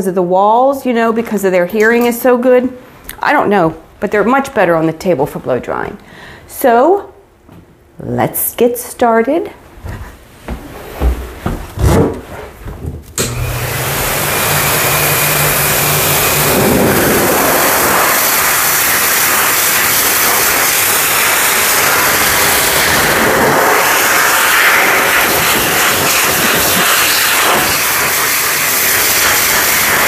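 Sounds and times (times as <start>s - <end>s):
blow dryer rush of air: 13.2s - 30.0s.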